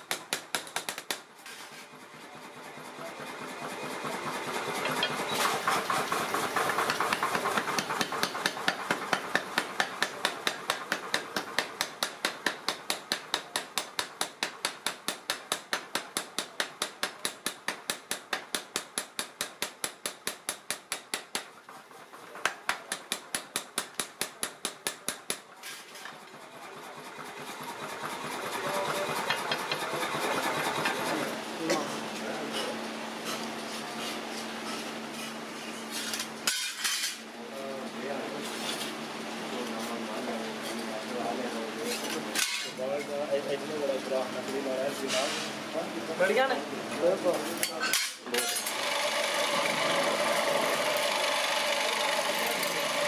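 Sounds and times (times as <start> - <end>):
power hammer pounding iron: 1.9 - 21.7, 22.4 - 25.5, 26.9 - 31.4, 48.5 - 53.0.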